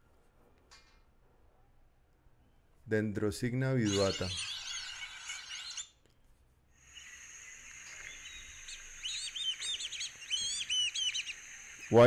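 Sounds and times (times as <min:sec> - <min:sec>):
ducks whistling calls: 0:07.0 - 0:12.0.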